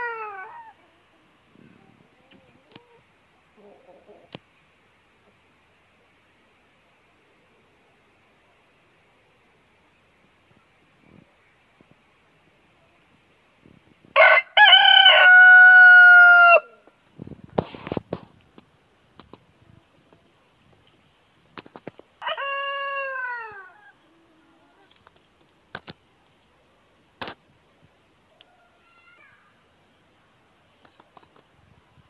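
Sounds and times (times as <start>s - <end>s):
rooster crowing: 14.2s - 16.7s, 22.2s - 23.8s.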